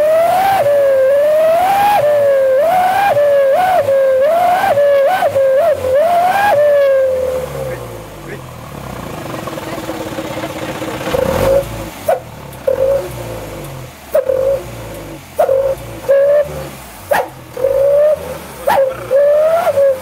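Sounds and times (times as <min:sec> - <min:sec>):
howling exhaust whistle: 0:00.0 - 0:07.7, 0:15.4 - 0:20.0
truck engine revving: 0:00.0 - 0:20.0.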